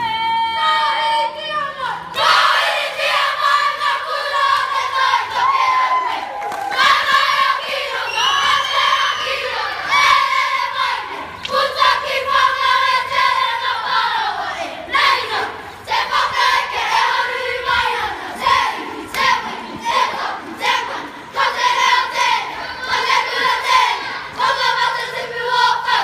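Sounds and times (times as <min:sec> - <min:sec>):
children chanting and singing: 0:00.0 - 0:26.0
shouted calls: 0:07.9 - 0:10.1.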